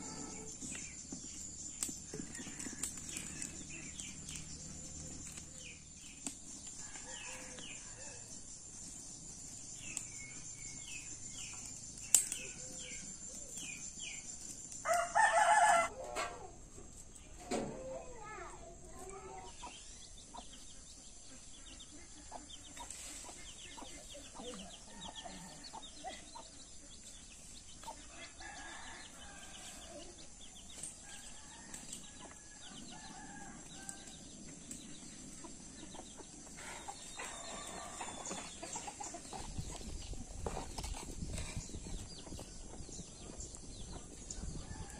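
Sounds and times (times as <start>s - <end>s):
small birds chirping: 0.0s - 15.8s, 18.1s - 44.9s
chickens clucking: 19.5s - 26.6s, 35.3s - 42.8s.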